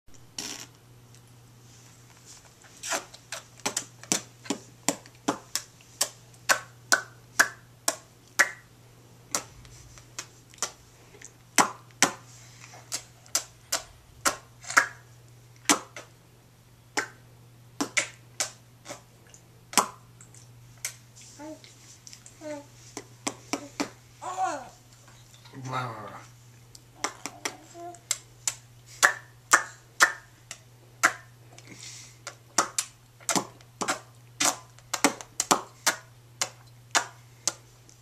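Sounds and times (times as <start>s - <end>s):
mouth clicks and smacks: 9.3s - 12.2s, 12.9s - 15.0s, 17.8s - 21.0s, 26.6s - 38.0s.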